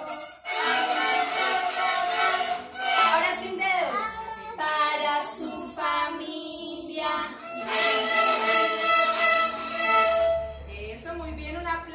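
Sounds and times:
beginner violins playing: 0.0 - 3.5, 7.4 - 10.7
children singing: 0.0 - 10.5.

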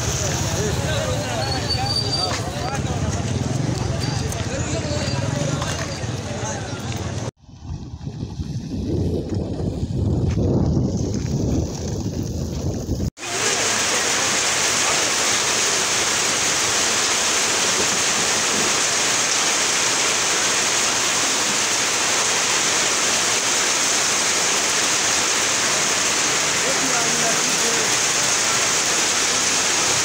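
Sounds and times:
low gusty rumble: 7.1 - 13.1
wind on microphone: 7.4 - 13.1
loud steady hiss: 13.2 - 30.0.

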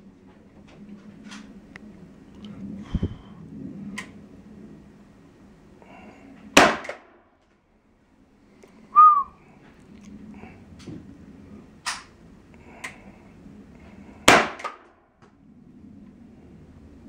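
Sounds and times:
lighter sharp cracks: 6.6 - 7.2, 14.3 - 15.0.

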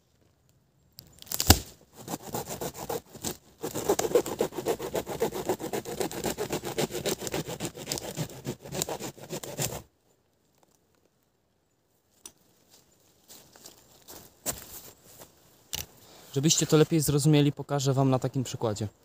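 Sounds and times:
hand saw rasping through wood: 2.0 - 9.8.

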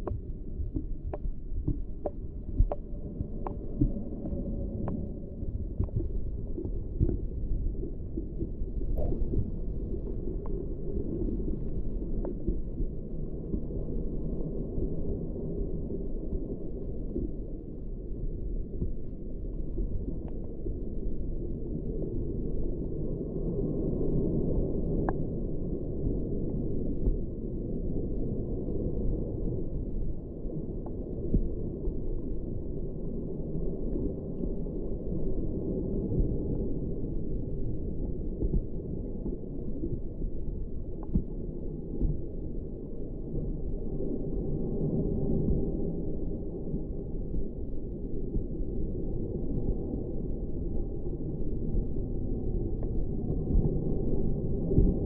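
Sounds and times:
faint crackles and clicks: 0.0 - 55.0
muffled underwater rumble: 0.0 - 55.0.

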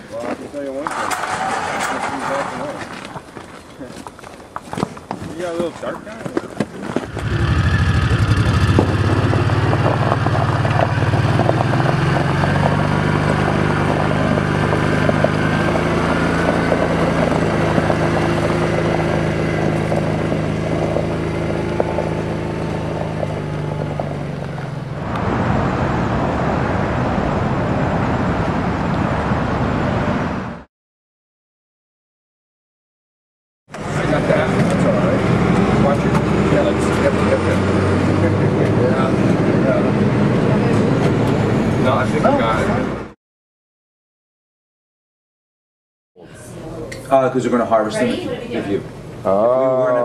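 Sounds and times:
steady rushing noise: 6.8 - 30.7
vehicle engine running: 6.9 - 28.8, 33.7 - 43.2.

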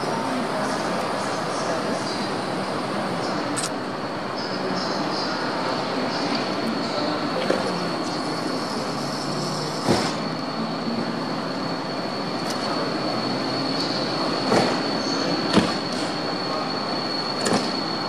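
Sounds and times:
locomotive engine drone: 0.0 - 18.0
high wheel squeal: 7.8 - 18.0.

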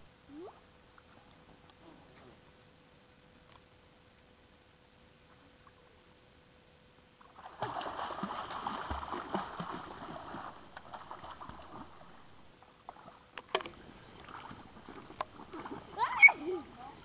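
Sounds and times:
pool water splashing: 7.2 - 17.0.

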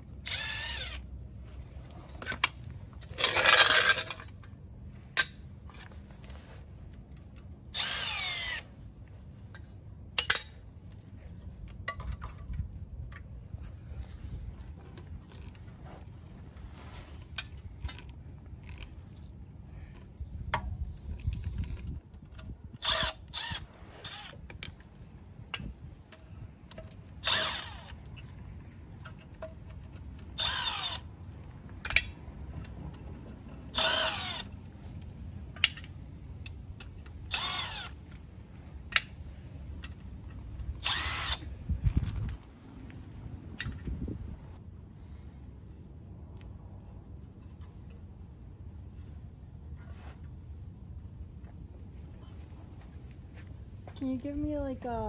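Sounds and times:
impact wrench bursts: 27.2 - 28.0, 40.8 - 41.4.

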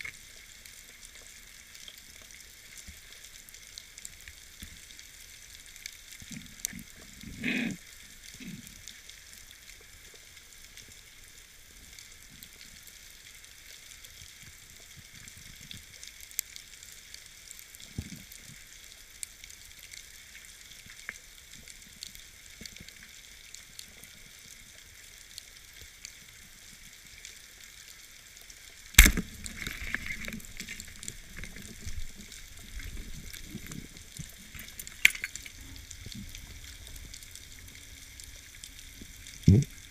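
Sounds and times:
underwater crackling hiss: 0.0 - 39.9
sharp loud crack: 29.0 - 29.9.

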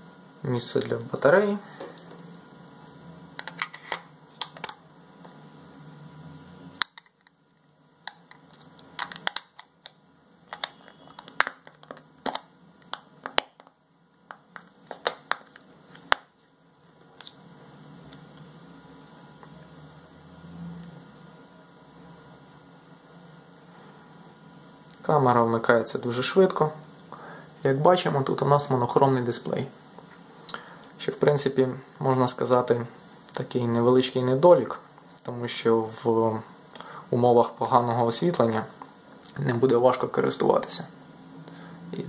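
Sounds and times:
low hum: 0.0 - 31.0.

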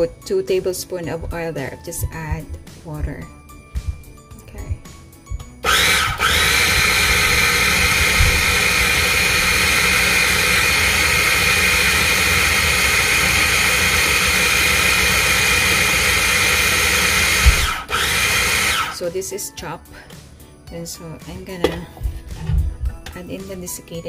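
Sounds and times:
food processor motor whirring: 5.6 - 19.0.

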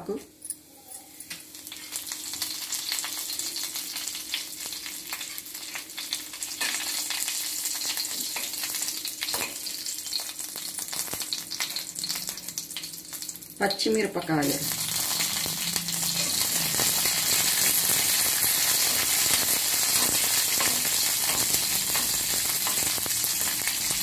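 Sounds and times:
spices sizzling in hot oil: 1.0 - 24.0
spoon scraping in a pan: 16.1 - 23.1.

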